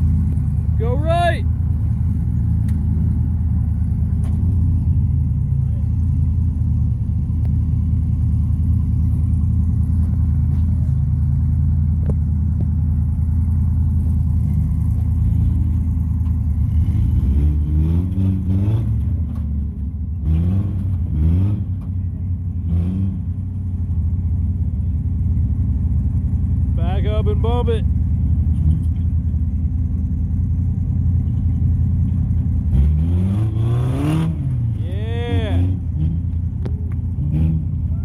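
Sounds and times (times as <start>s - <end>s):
pickup engine revving: 0.0s - 19.6s, 30.4s - 38.0s.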